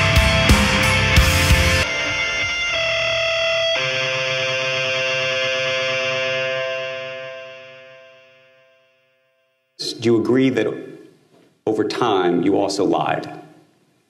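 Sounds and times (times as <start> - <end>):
drums: 0.0 - 4.0
theme music: 0.0 - 8.3
held chords: 0.0 - 10.0.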